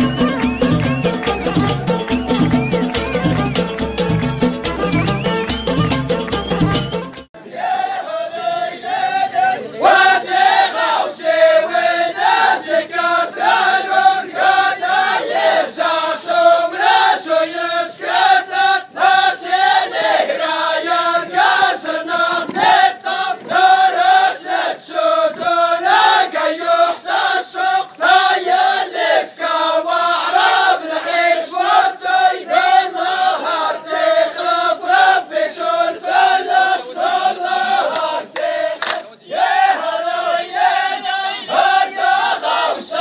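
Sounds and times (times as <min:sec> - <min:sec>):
percussion beat: 0:00.0 - 0:07.3
voices chanting in unison: 0:07.4 - 0:43.0.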